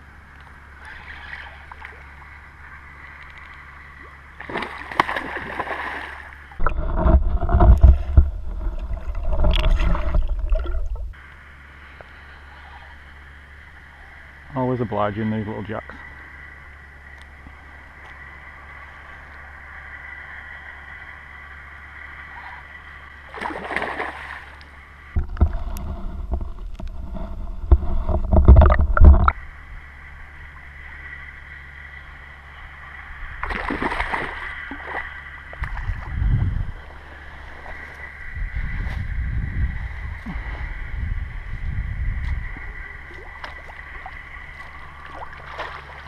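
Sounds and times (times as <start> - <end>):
muffled underwater rumbling: 0.0 - 46.0
water splashing and gurgling: 0.5 - 11.2, 19.6 - 29.4, 32.8 - 46.0.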